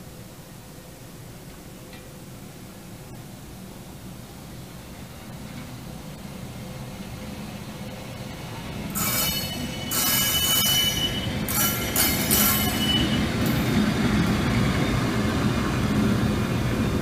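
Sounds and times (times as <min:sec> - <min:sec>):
wheels rumbling on rails: 0:04.6 - 0:17.0
train wheels squealing: 0:08.9 - 0:13.9.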